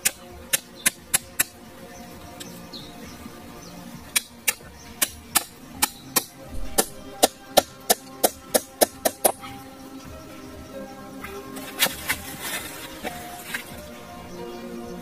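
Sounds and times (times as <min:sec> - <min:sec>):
hatchet knocking wooden stakes: 0:00.0 - 0:01.6, 0:04.1 - 0:09.4.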